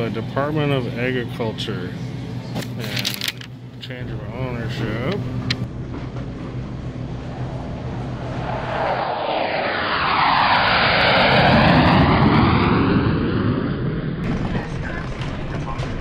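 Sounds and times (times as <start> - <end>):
airplane passing close by: 4.7 - 14.2.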